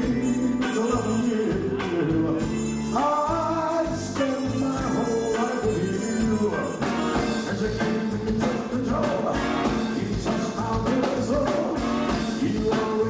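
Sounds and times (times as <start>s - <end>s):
steady drum beat: 0.0s - 13.0s
horn section playing upbeat tune: 4.3s - 10.6s, 11.4s - 13.0s.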